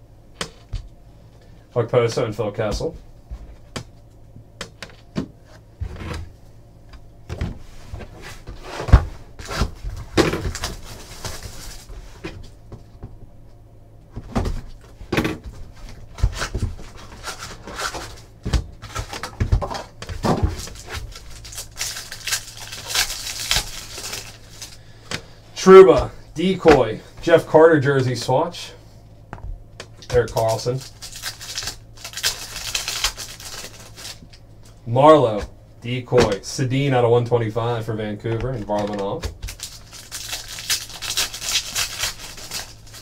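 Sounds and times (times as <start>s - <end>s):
foil packs crinkling: 9.4s - 12.0s, 15.9s - 25.9s, 30.0s - 34.4s, 38.7s - 43.0s.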